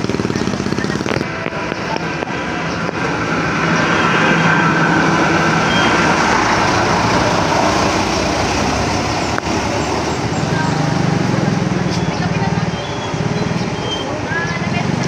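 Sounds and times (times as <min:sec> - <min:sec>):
train wheels rolling: 0:00.0 - 0:14.3
train engine drone: 0:00.0 - 0:15.0.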